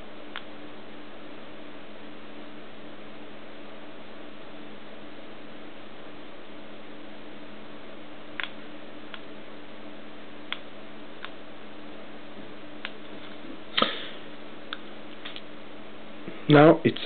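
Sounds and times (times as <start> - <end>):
remote control buttons clicking: 8.4 - 9.3
steady hiss: 13.1 - 14.4.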